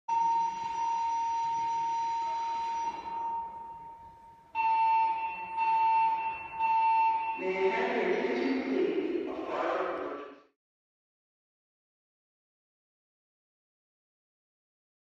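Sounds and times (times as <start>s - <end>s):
fire alarm alert tone: 0.1s - 8.4s
recorded evacuation message: 4.6s - 10.5s.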